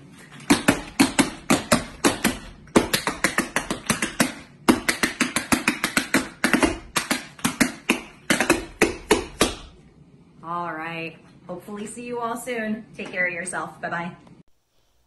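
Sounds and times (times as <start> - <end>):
tap shoes on wooden board: 0.5 - 9.7.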